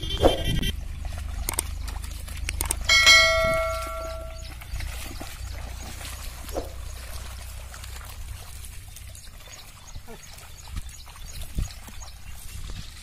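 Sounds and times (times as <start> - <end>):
water and mud sloshing: 0.0 - 13.0
bell ringing: 2.9 - 4.4.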